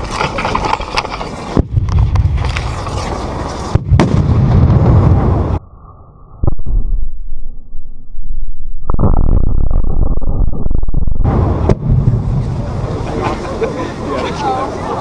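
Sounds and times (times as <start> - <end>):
muffled rumble: 0.0 - 13.8
sharp pops and bangs: 1.5 - 5.6, 8.8 - 12.6.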